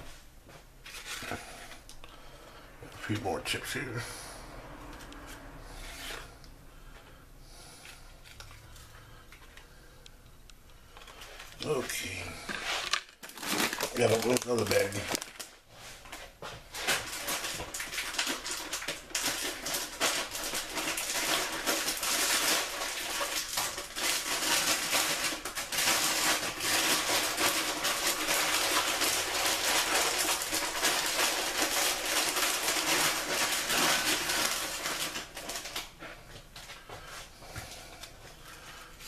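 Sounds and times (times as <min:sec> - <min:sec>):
plastic bag crinkling: 0:10.9 - 0:36.8.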